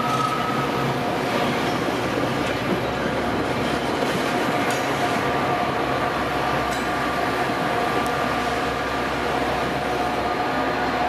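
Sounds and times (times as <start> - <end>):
train passing: 0.0 - 11.0.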